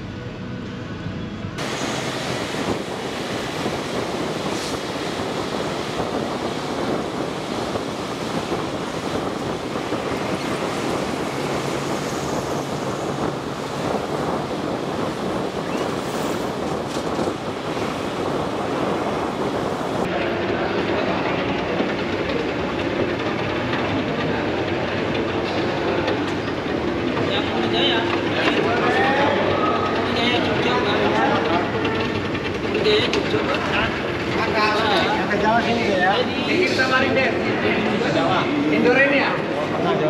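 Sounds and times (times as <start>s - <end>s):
wind and road noise: 0.0s - 36.6s.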